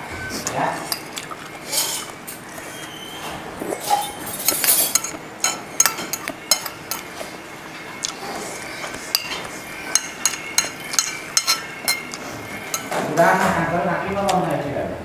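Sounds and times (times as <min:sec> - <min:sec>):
spoon clinking on ceramic plate: 0:03.9 - 0:07.1, 0:09.1 - 0:13.0.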